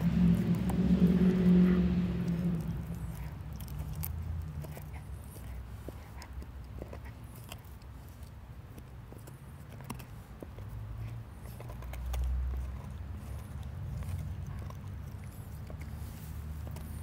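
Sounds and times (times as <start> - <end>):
low rumble: 0.0 - 4.8
dog gnawing a bone: 0.0 - 17.0.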